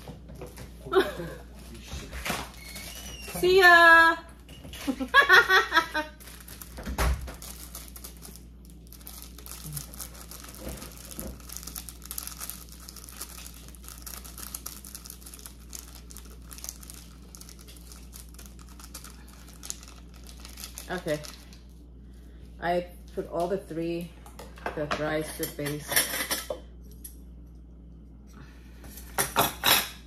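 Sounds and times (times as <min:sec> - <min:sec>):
plastic sachets crinkling: 0:05.2 - 0:22.0.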